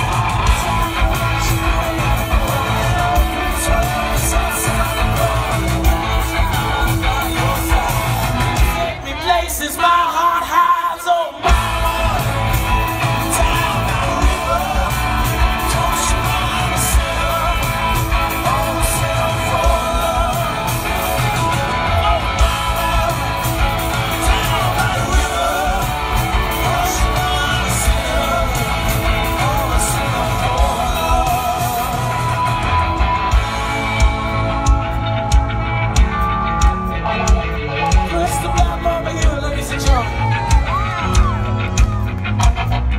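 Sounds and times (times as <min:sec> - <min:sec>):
rock band playing live: 0:00.0 - 0:42.9.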